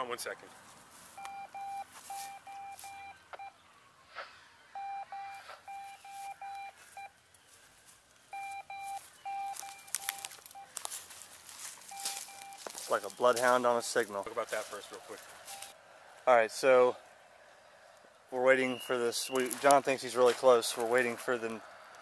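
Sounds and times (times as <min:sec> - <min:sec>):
footsteps in leaf litter: 0:00.5 - 0:01.2, 0:01.8 - 0:03.0, 0:05.5 - 0:15.8, 0:18.9 - 0:22.0
radio receiver beeping in pulses: 0:01.2 - 0:03.6, 0:04.7 - 0:07.1, 0:08.3 - 0:10.7, 0:11.9 - 0:12.7.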